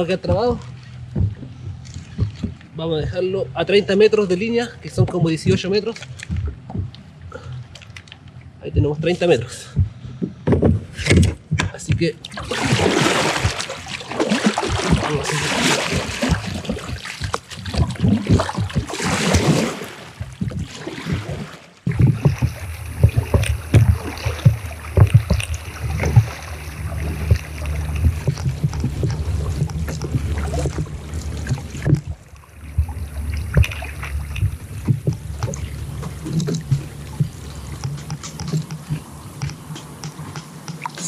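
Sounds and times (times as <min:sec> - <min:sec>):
kayak paddle splashing: 0:00.0 - 0:02.8, 0:12.2 - 0:41.0
steady low rumble: 0:00.0 - 0:40.7
water swishing along hull: 0:00.0 - 0:41.0.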